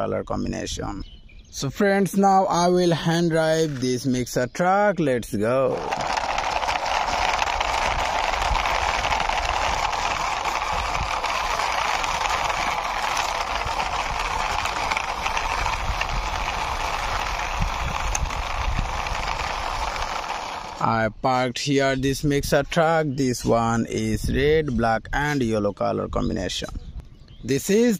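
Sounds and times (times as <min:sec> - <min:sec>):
plastic wheels rolling on concrete: 0:05.4 - 0:21.0.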